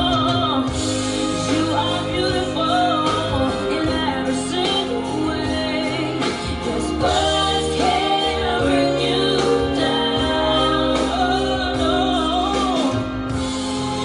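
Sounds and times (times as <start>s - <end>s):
song with singing voice: 0.0s - 14.0s.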